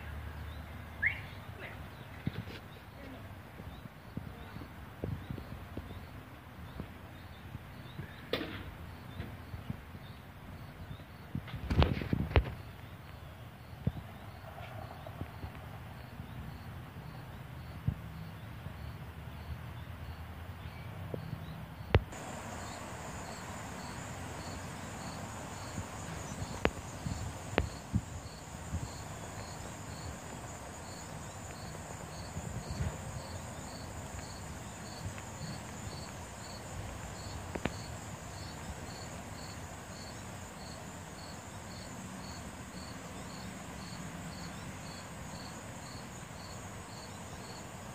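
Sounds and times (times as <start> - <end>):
insect chirping: 0.0 - 2.0, 8.8 - 47.9
high insect buzz: 21.9 - 47.9.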